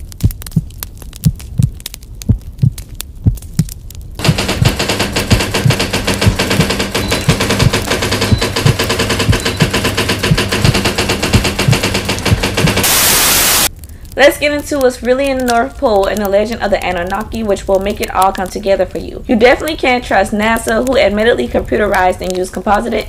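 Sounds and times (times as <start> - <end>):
low heartbeat-like thuds: 0.0 - 12.8
rapid dense clatter of clicks: 4.2 - 13.0.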